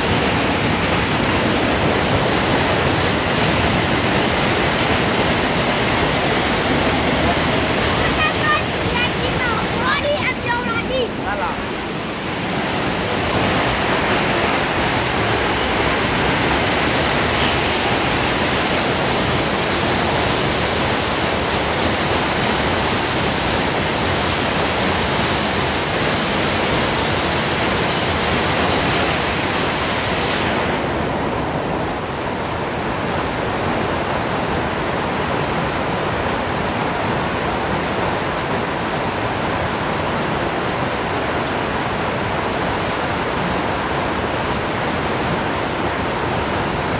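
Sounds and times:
hail and heavy rain pelting: 0:00.0 - 0:30.0.

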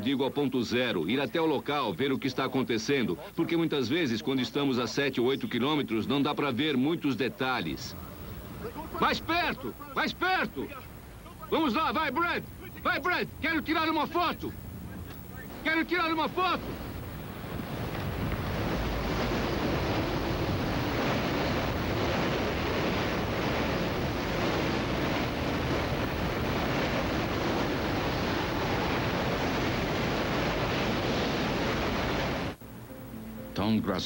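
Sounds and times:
strong wind on microphone: 0:14.5 - 0:32.6.

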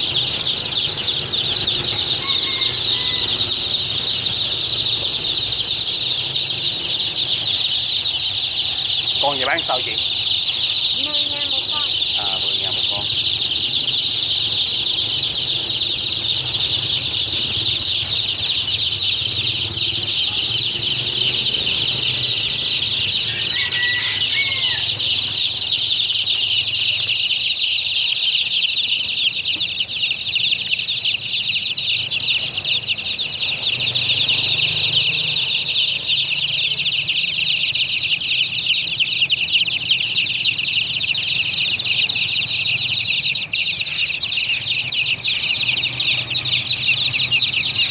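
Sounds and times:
chicks and ducklings peeping: 0:00.0 - 0:47.9.

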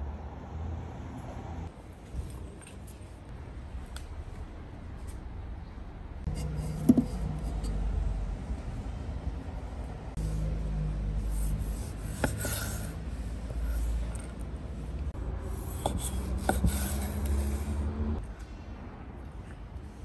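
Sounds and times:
knife slicing tomato on board: 0:06.4 - 0:07.8, 0:11.5 - 0:12.8, 0:15.6 - 0:17.4.

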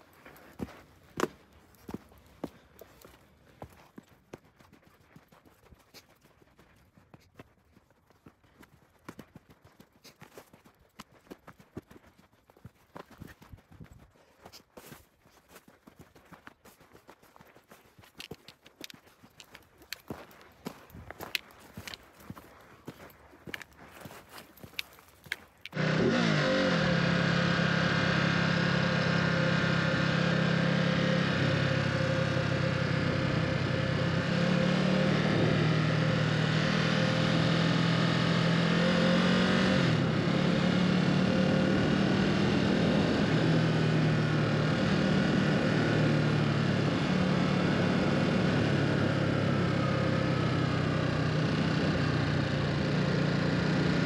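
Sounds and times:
wind and road noise: 0:17.6 - 0:54.0
motorcycle engine running: 0:19.5 - 0:54.0.

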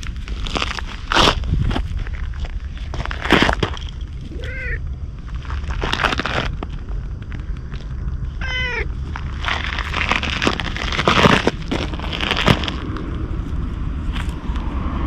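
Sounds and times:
rustling and scraping: 0:00.0 - 0:14.7
low rumble: 0:00.0 - 0:15.0
cat meowing: 0:04.3 - 0:04.8, 0:08.4 - 0:08.9.

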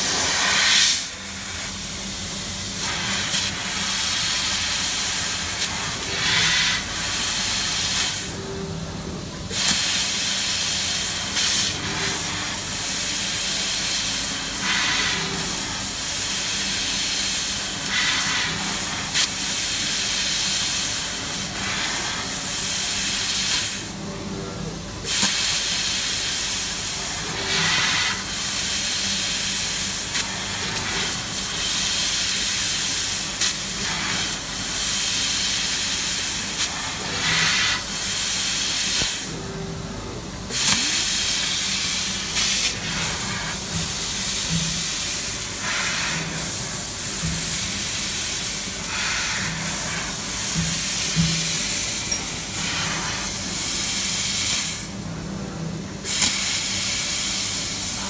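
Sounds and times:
hiss of gas jet: 0:00.0 - 0:01.8, 0:02.4 - 0:08.3, 0:09.5 - 0:23.9, 0:25.1 - 0:39.4, 0:40.5 - 0:55.0, 0:56.1 - 0:58.0
low machine hum: 0:08.3 - 0:09.5, 0:39.3 - 0:53.5.

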